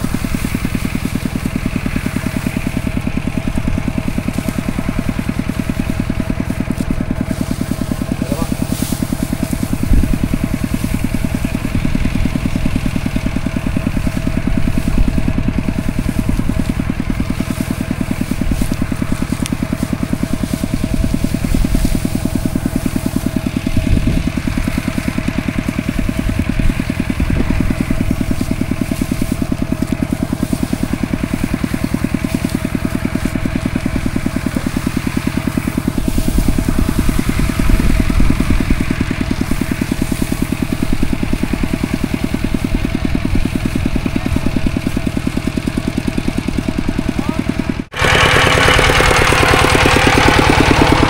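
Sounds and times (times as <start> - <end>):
tractor engine running: 0.0 - 51.0.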